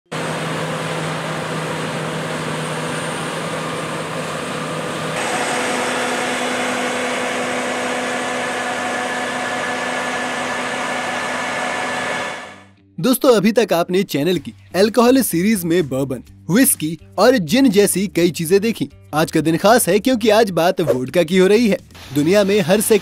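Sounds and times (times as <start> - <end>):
machine running with hum: 0.1 - 12.7.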